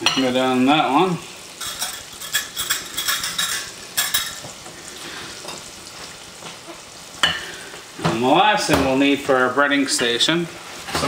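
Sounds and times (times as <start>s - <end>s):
onion frying in butter: 0.0s - 11.0s.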